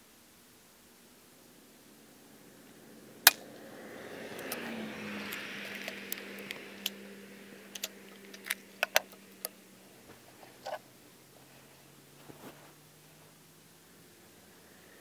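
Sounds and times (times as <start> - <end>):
rifle lever metallic clicks: 7.7 - 9.2.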